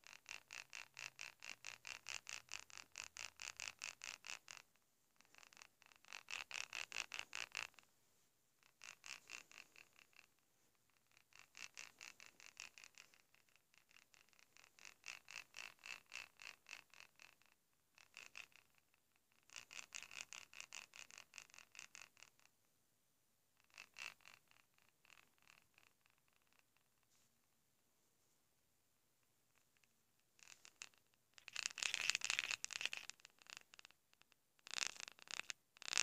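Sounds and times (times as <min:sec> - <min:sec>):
toy cat purring: 0:00.0 - 0:07.9, 0:08.6 - 0:22.6, 0:23.6 - 0:27.6, 0:29.2 - 0:36.0.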